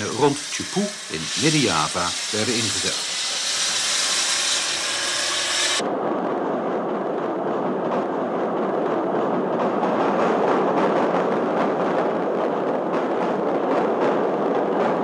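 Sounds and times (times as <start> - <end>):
steam hissing: 0.0 - 5.8
train clattering over bridge: 2.6 - 15.0.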